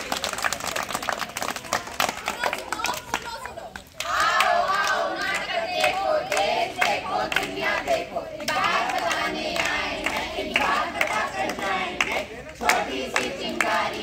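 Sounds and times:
hands clapping: 0:00.0 - 0:14.0
group singing together: 0:04.0 - 0:14.0.

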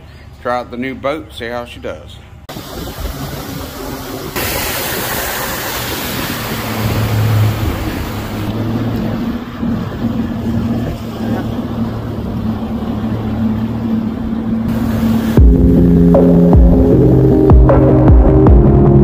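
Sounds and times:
outboard engine drone: 0:02.4 - 0:19.0
wind buffeting microphone: 0:02.5 - 0:15.6
churning wake rushing: 0:02.5 - 0:18.0.

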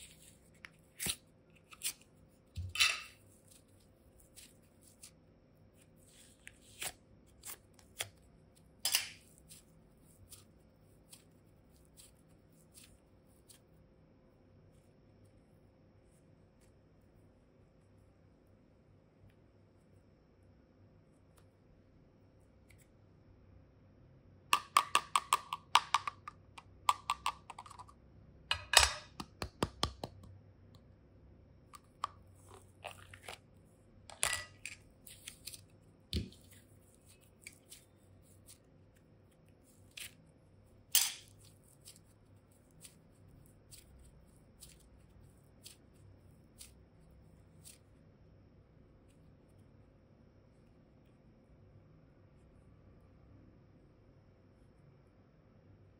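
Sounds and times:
clay squishing: 0:00.0 - 0:23.3, 0:31.5 - 0:52.8.

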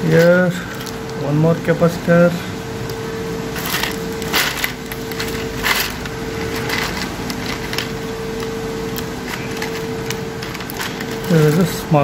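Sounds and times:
steady hum: 0:00.0 - 0:12.0
electronic components clicking: 0:03.6 - 0:11.9.

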